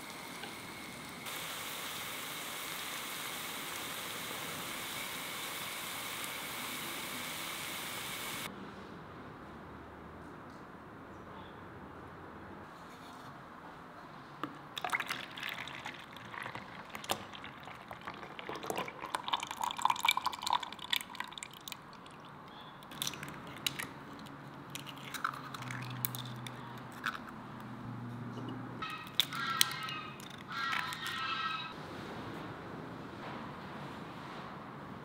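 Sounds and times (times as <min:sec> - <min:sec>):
liquid pouring into a bowl: 0:14.8 - 0:23.9, 0:24.7 - 0:27.2.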